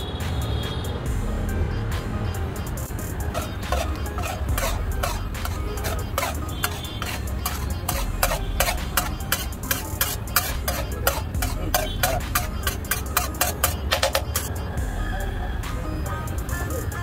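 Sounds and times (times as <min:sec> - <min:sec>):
spatula scraping on griddle: 0:02.8 - 0:14.5.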